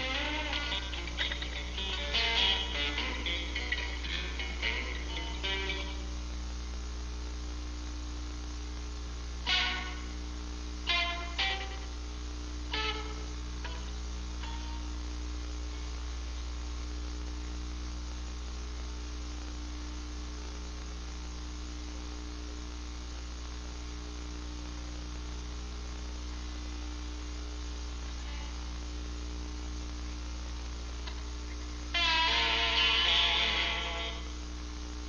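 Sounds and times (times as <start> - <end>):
guitar playing: 0.0 - 6.1, 9.5 - 10.1, 10.9 - 11.9, 12.7 - 15.0, 32.0 - 34.3
electrical hum with hiss: 0.0 - 35.0.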